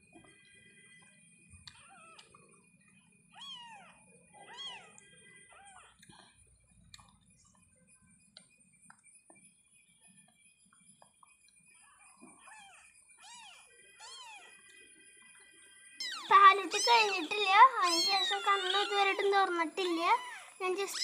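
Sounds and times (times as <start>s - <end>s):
kittens mewing: 16.0s - 21.0s.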